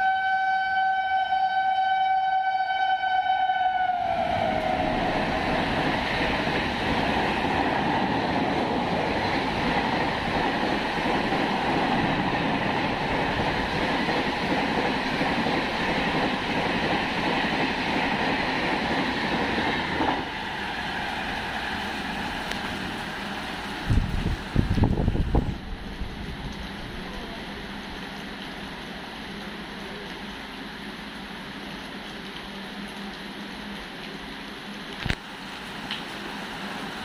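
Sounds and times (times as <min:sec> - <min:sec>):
train horn: 0:00.0 - 0:05.2
train coaches rushing past: 0:03.8 - 0:25.6.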